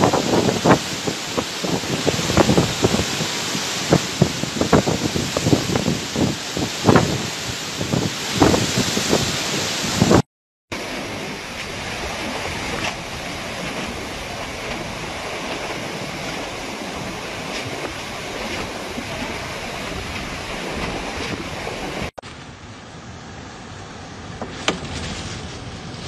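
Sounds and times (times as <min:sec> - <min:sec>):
wind buffeting microphone: 0:00.0 - 0:10.2
strong wind through palm trees: 0:00.0 - 0:26.0.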